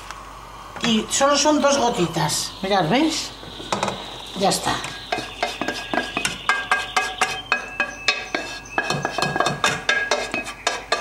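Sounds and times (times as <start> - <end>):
pot ringing: 5.1 - 11.0
spoon scraping metal pot: 5.1 - 11.0.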